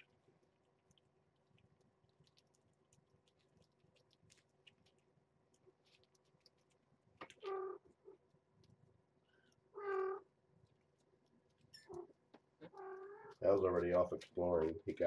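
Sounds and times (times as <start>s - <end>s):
cats chewing and licking: 0.0s - 15.0s
cat meowing: 7.4s - 7.9s, 9.4s - 10.3s, 11.8s - 13.4s.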